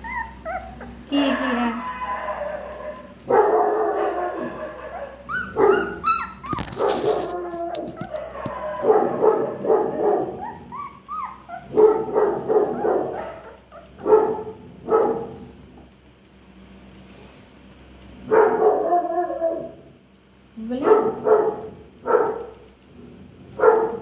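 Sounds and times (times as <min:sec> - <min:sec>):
puppies yipping and barking: 0:00.0 - 0:15.2
scratchy rustle: 0:06.4 - 0:08.3.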